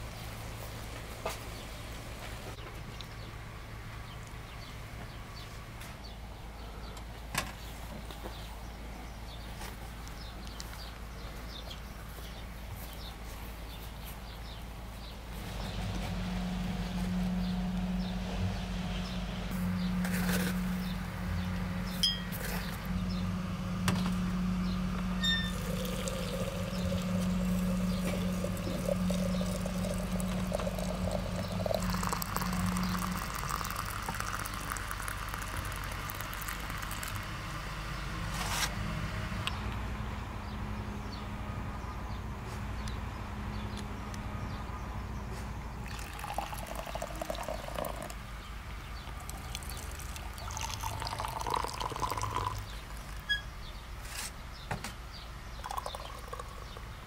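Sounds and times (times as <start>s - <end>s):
samovar boiling hum: 14.5s - 38.5s, 45.7s - 53.8s
water pouring into teapot: 25.2s - 37.4s, 45.8s - 48.2s, 49.0s - 53.3s, 55.6s - 56.9s.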